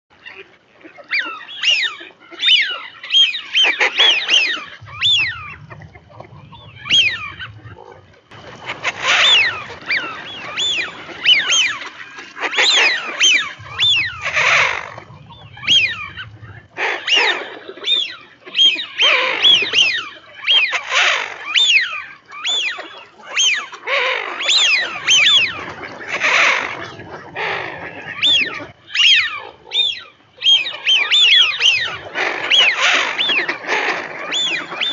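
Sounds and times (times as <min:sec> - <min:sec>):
ducks whistling calls: 0:00.2 - 0:34.9
low rumble: 0:04.2 - 0:11.8, 0:13.0 - 0:17.7.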